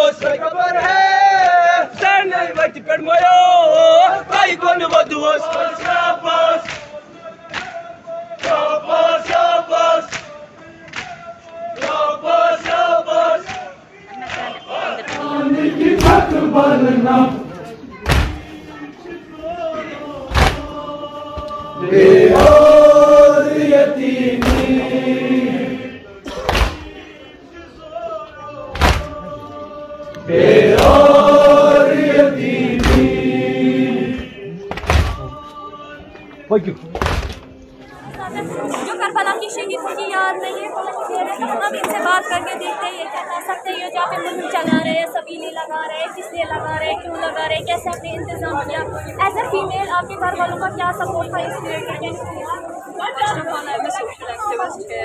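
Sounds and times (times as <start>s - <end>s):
crowd of men chanting in unison: 0.0s - 36.3s
rhythmic chest-beating slaps: 0.2s - 2.8s, 4.3s - 17.2s, 18.0s - 18.6s, 20.2s - 25.5s, 26.2s - 27.1s, 28.7s - 29.4s, 30.1s - 35.6s, 36.9s - 37.4s
chest-beating thump: 18.0s - 18.5s, 20.3s - 20.7s, 24.4s - 24.9s, 26.3s - 27.0s, 28.8s - 29.2s, 32.8s - 33.3s, 34.7s - 35.4s, 37.0s - 37.5s.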